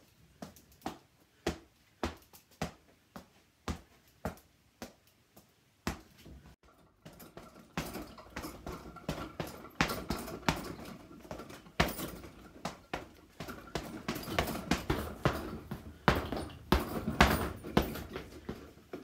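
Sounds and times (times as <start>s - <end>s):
speed bag rattling: 7.1s - 18.7s
punches on heavy bag: 7.4s - 18.6s.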